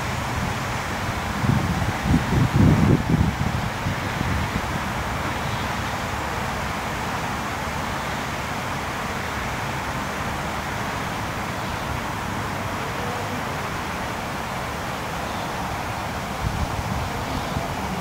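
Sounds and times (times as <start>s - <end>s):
wind rumble on microphone: 0.0s - 5.4s, 16.2s - 18.0s
distant road traffic: 0.0s - 18.0s.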